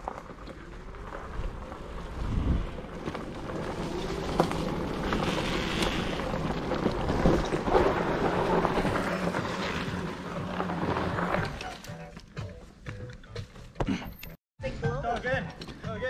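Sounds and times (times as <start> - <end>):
tyres rolling on dirt trail: 0.0 - 13.8
wind buffeting microphone: 0.9 - 9.0.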